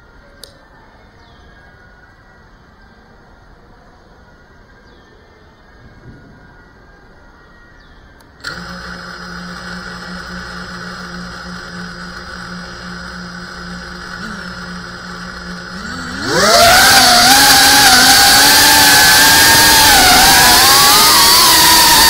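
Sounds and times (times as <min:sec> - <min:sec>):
drone motors whirring: 0:08.2 - 0:22.0.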